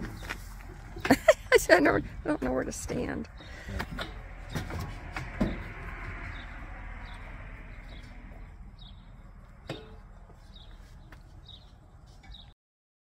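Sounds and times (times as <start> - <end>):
small birds chirping: 5.5 - 12.6.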